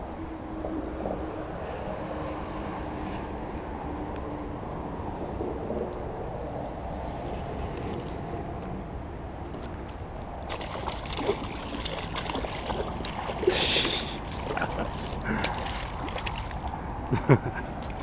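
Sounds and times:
fish splashing in water: 10.5 - 16.9.

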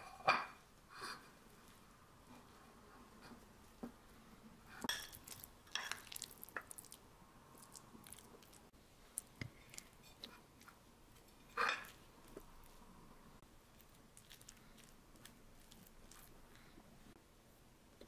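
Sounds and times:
chewing: 5.1 - 12.8, 13.6 - 16.8.

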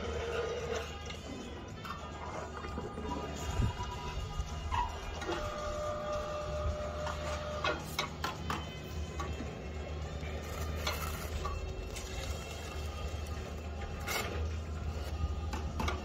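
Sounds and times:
crane hoist motor whining: 3.2 - 8.2.

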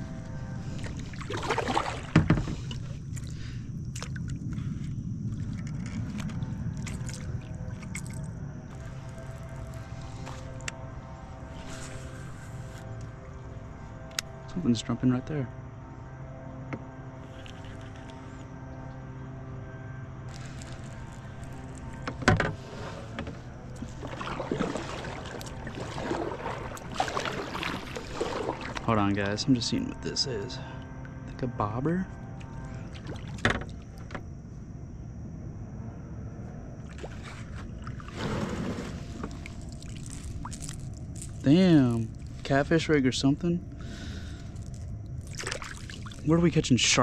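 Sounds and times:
paddle splashing and dripping: 0.0 - 13.5, 20.3 - 30.0, 32.4 - 34.1, 36.8 - 42.6, 43.8 - 46.5
water splash: 0.7 - 4.2, 23.7 - 29.1, 36.9 - 41.4, 45.2 - 46.3.

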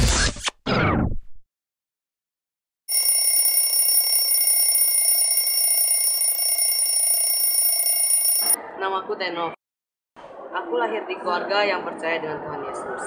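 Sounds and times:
mobile phone ringing: 2.9 - 8.6.

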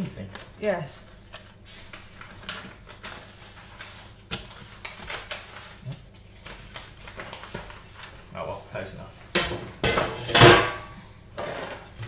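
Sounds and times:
paper rustling: 0.0 - 8.6.

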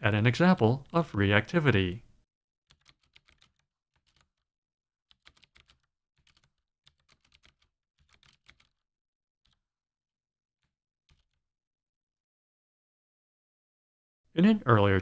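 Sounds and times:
computer keyboard typing: 2.7 - 4.4, 5.1 - 8.8, 11.1 - 11.4.

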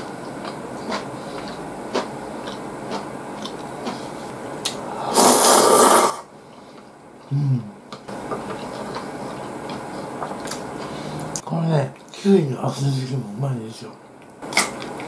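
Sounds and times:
chewing: 0.0 - 4.8, 7.9 - 12.2
low vocal sound: 7.3 - 7.8.

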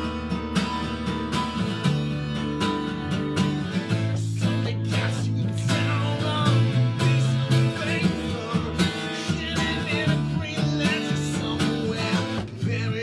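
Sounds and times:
second guitar playing: 0.0 - 13.0
strummed acoustic guitar: 0.0 - 13.0
man singing: 3.7 - 13.0.

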